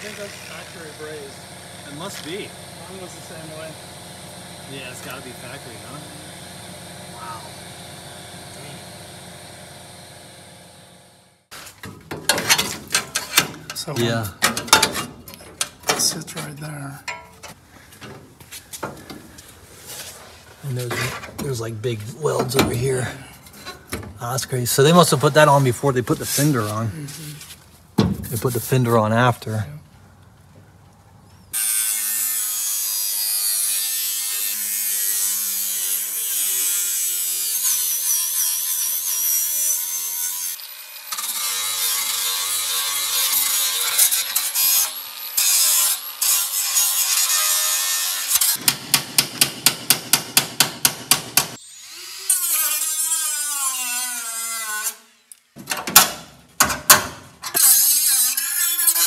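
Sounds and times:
angle grinder grinding steel: 0.0s - 10.6s, 19.8s - 27.3s, 31.6s - 48.6s, 51.6s - 55.5s, 57.5s - 59.0s
tool whine: 0.0s - 11.7s.

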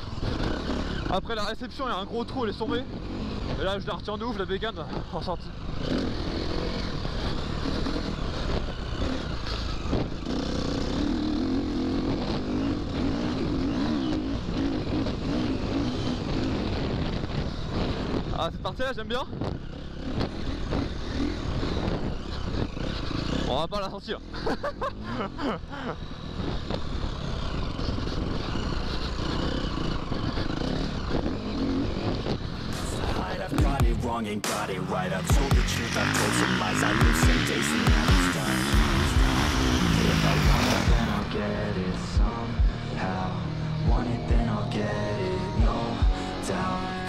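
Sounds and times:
motocross bike engine revving: 0.0s - 47.0s.

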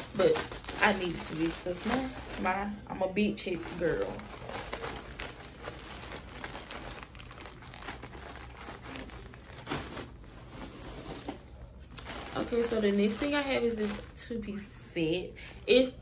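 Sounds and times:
plastic packaging crinkling: 0.0s - 14.7s
clothes rustling: 3.4s - 14.0s.

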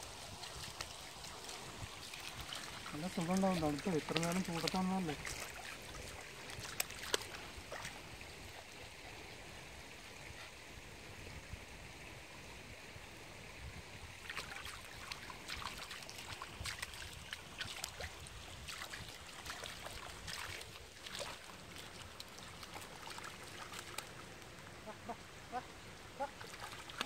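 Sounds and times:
stream trickling: 0.0s - 27.0s
dog splashing through water: 0.3s - 8.0s, 14.2s - 24.2s.

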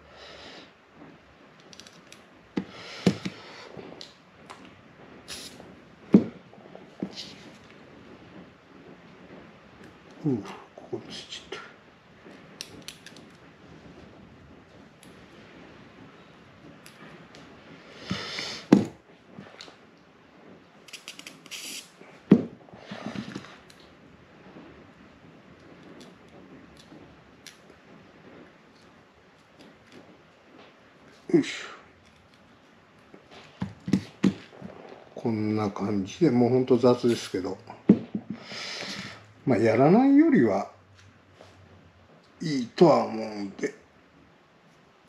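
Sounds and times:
aerosol spray hisses: 5.2s - 5.8s, 21.4s - 23.6s.

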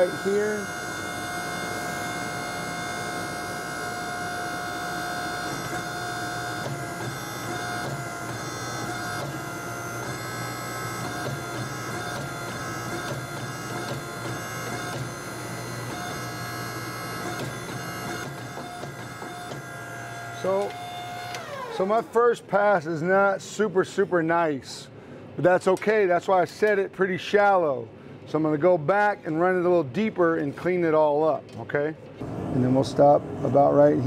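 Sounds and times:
hydraulic press droning whine: 0.0s - 22.9s.

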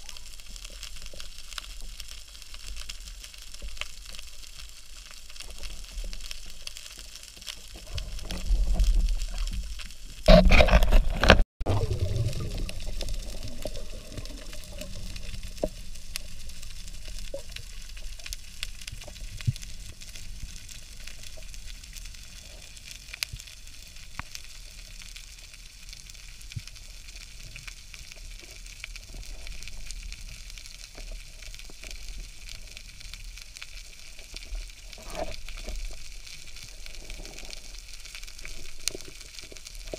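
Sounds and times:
underwater crackling hiss: 0.0s - 11.0s, 11.7s - 39.9s
rush of water or bubbles: 7.8s - 17.7s.

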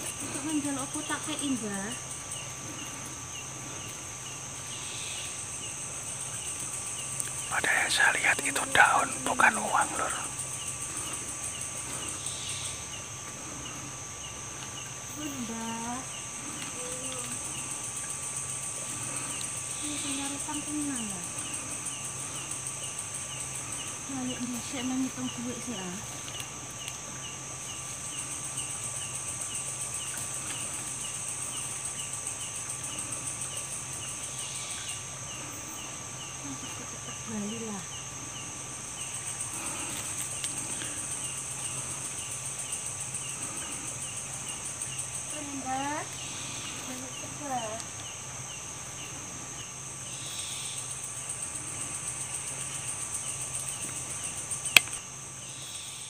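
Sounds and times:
cricket chirping: 0.0s - 56.0s
high pulsing insect buzz: 0.0s - 56.0s
sharp click: 54.7s - 55.0s.

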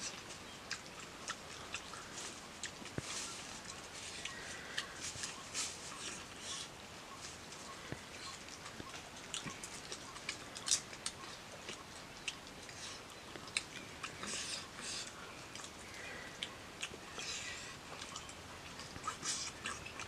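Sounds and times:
person chewing and smacking: 0.0s - 20.0s
rustling: 1.4s - 16.4s.

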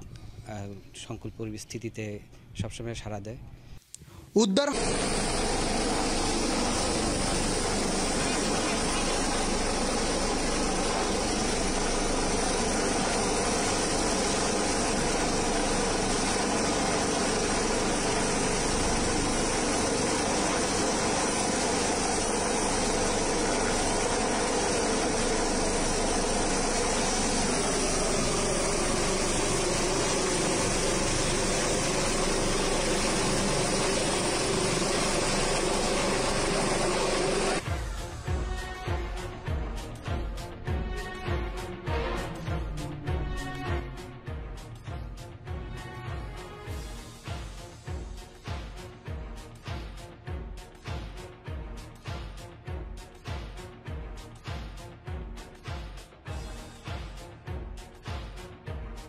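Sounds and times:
helicopter rotor and turbine: 4.6s - 45.7s.

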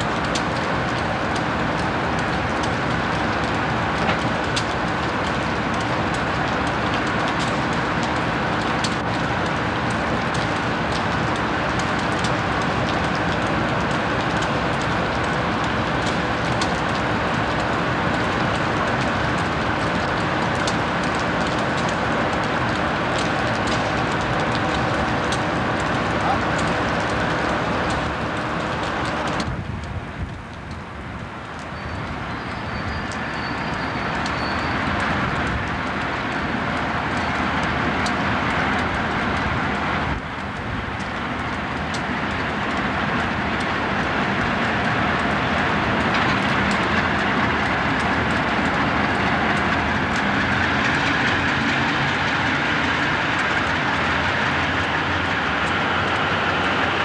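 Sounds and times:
diesel locomotives pulling away: 0.0s - 57.0s
steel wheels on rails: 31.2s - 57.0s.

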